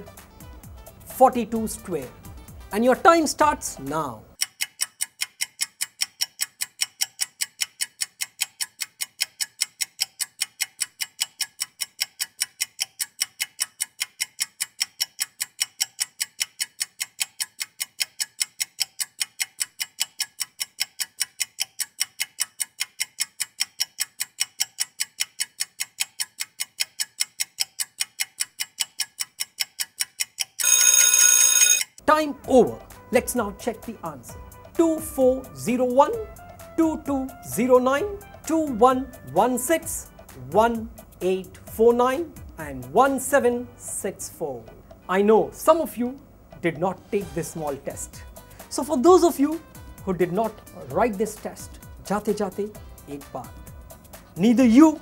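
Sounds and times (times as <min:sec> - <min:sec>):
clock ticking: 0:00.0 - 0:55.0
loud ringing alarm: 0:30.6 - 0:32.0.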